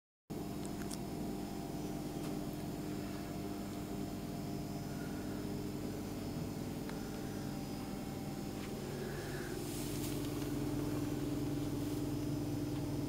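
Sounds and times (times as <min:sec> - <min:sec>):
incubator humming: 0:00.3 - 0:13.0
faint clicks: 0:00.6 - 0:01.0.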